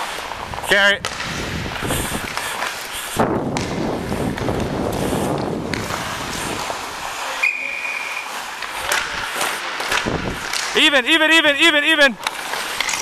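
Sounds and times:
ice skates scraping: 0.0s - 13.0s
wind on microphone: 0.4s - 2.4s, 3.1s - 6.9s, 10.0s - 10.5s
high whistle tone: 7.4s - 8.3s.

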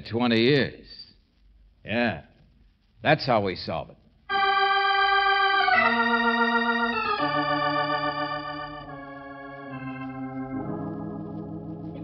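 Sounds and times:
organ chords: 4.3s - 12.0s.

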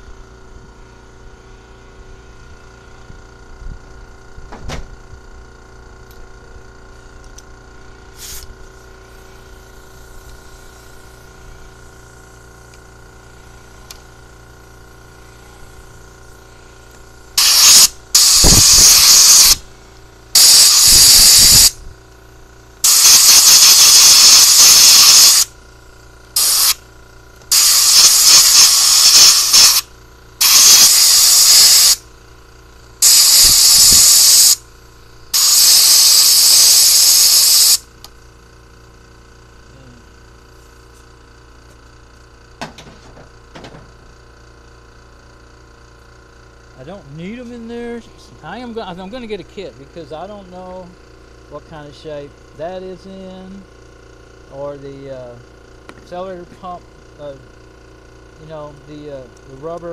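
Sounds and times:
compressed air blow gun blasts: 8.0s - 22.0s, 22.8s - 25.6s, 26.3s - 38.2s.

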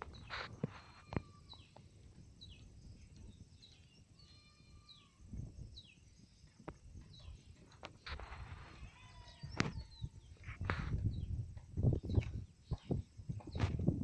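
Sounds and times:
faint bird chirps: 0.0s - 13.8s.

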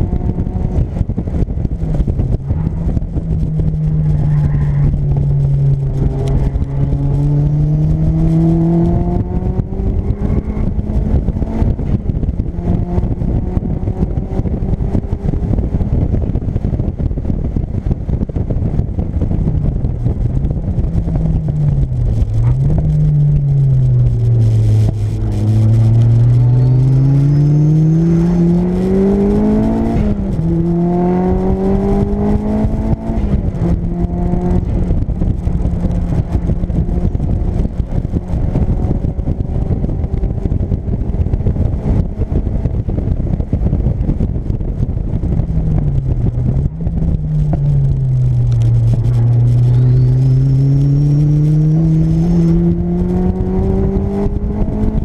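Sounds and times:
car engine revving hard: 2.5s - 12.0s, 21.8s - 39.9s, 47.4s - 55.0s
faint high turbo whistle: 49.1s - 51.8s.

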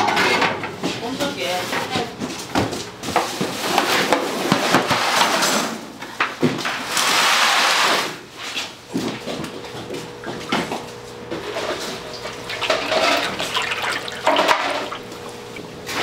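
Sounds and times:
utensils and containers clattering: 9.0s - 16.0s.

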